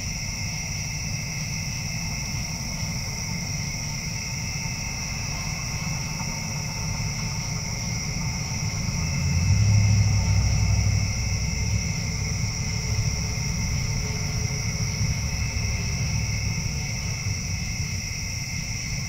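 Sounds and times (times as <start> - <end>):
night insects trilling: 0.0 - 19.0
low rumble: 5.3 - 18.5.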